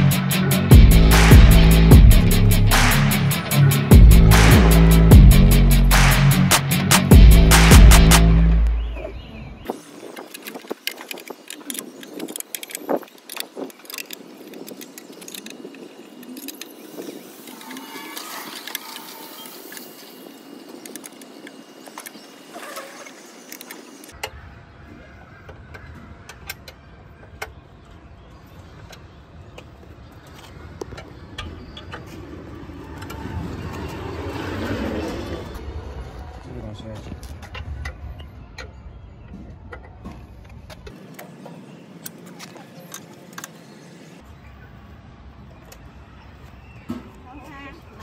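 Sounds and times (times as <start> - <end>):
hex key clicking on metal bolts: 10.1 - 16.8.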